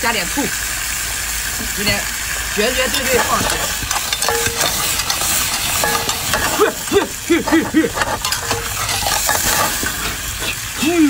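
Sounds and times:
seafood sizzling in a wok: 0:00.0 - 0:11.0
tongs and spatula clicking on pan: 0:02.9 - 0:10.6
flames flaring up: 0:03.2 - 0:10.8.

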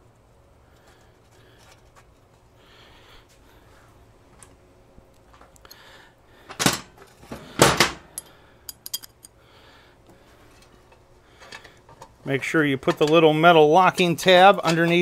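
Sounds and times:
metal bolts rattling in hand: 0:08.2 - 0:09.3.

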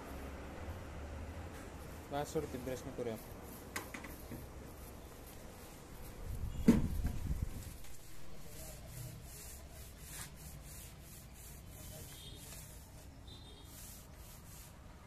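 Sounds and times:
paint roller swishing on concrete: 0:01.5 - 0:15.0
sharp knock: 0:06.6 - 0:07.2.

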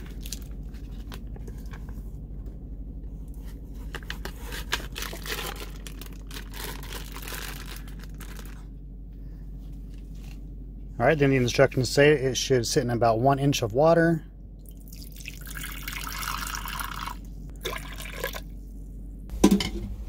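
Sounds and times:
steady low hum: 0:00.0 - 0:20.0
plastic bag crinkling: 0:04.4 - 0:08.7.

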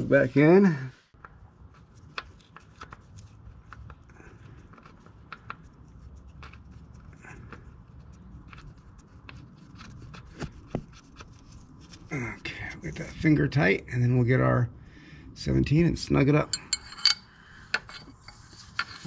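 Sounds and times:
metal plug clicking and scraping: 0:16.5 - 0:19.0.

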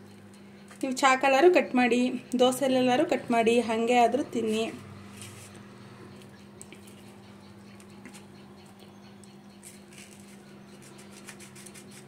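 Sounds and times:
steady low hum: 0:00.0 - 0:12.0
utensil cutting crisp pizza: 0:04.4 - 0:08.4, 0:09.3 - 0:12.0.

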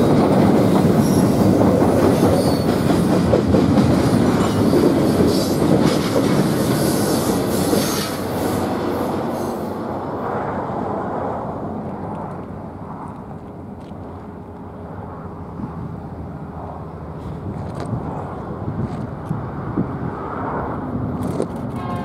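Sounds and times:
train wheels rumbling on rails: 0:00.0 - 0:22.0
faint high wheel squeals: 0:02.3 - 0:02.8.

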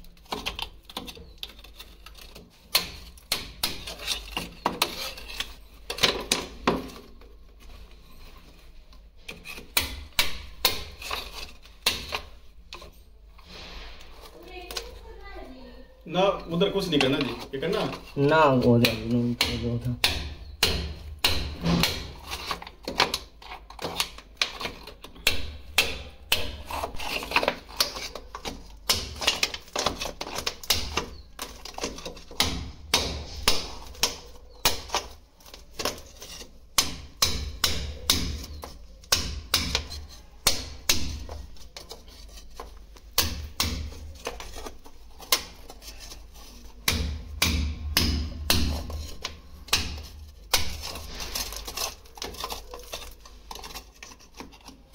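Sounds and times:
sharp hammer strikes: 0:46.9 - 0:48.9.

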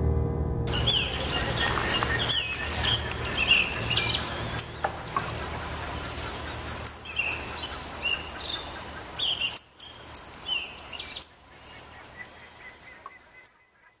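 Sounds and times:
bird chirping: 0:00.7 - 0:14.0
countryside ambience: 0:00.7 - 0:14.0.

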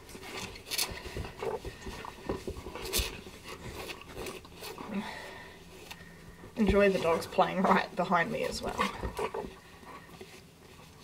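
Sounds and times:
dogs scuffling: 0:00.0 - 0:11.0
dogs low vocal sounds: 0:06.6 - 0:11.0.

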